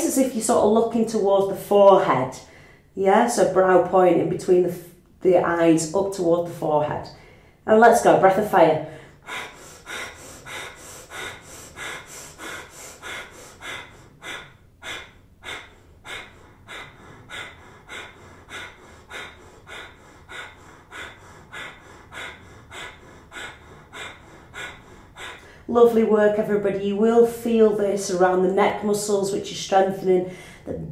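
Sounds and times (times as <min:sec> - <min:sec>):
woman breathing rapidly through nose: 0:02.4 - 0:03.0, 0:07.2 - 0:07.6, 0:08.8 - 0:25.8, 0:30.2 - 0:30.7.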